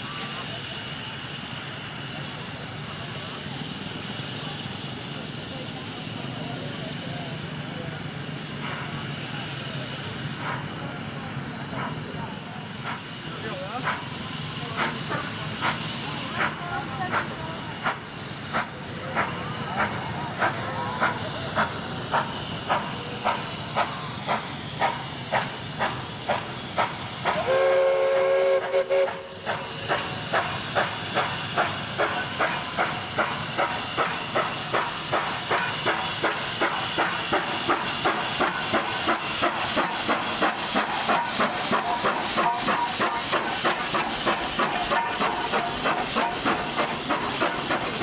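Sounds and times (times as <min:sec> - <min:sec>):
steam locomotive chuffing: 0:00.0 - 0:48.0
steam whistle blast: 0:27.4 - 0:29.4.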